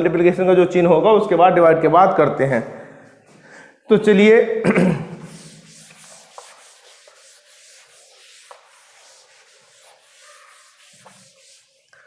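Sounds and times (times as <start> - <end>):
duster scrubbing chalkboard: 5.2 - 12.0.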